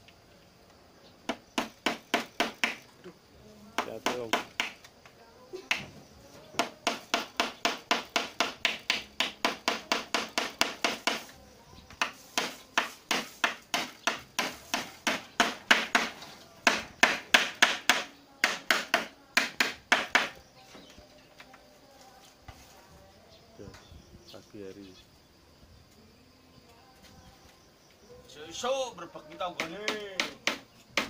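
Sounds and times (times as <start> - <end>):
hammer striking bamboo poles: 1.3 - 2.9, 3.8 - 4.9, 6.5 - 11.4, 12.0 - 20.4, 29.6 - 31.0.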